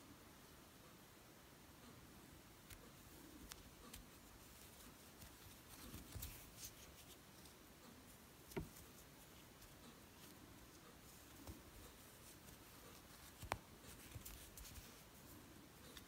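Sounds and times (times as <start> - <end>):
crochet hook clicking on yarn: 8.4 - 15.0.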